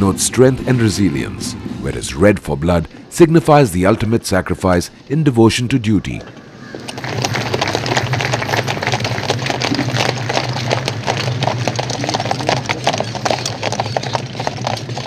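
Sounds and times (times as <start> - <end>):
hooves clip-clopping on pavement: 6.1 - 15.0.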